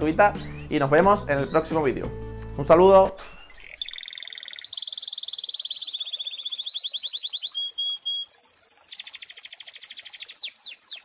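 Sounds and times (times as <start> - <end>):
canary singing trills: 0.3 - 1.8, 3.2 - 11.0.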